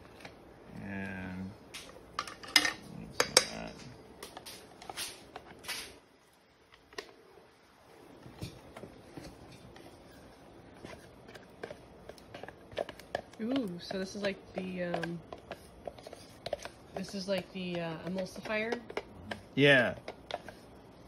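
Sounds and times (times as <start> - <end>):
spoon scraping and knocking: 8.4 - 20.7.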